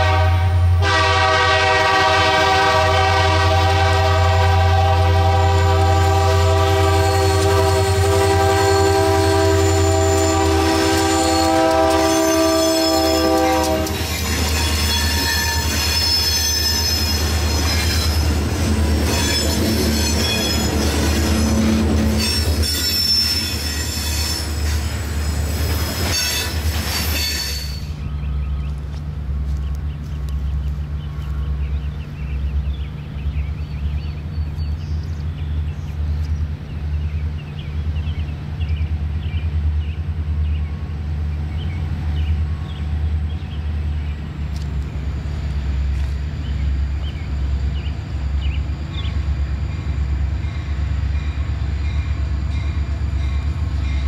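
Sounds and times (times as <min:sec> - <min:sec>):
locomotive air horn: 0:00.0 - 0:17.9
train rolling past: 0:00.0 - 0:54.0
wheel flanges squealing: 0:06.7 - 0:28.1.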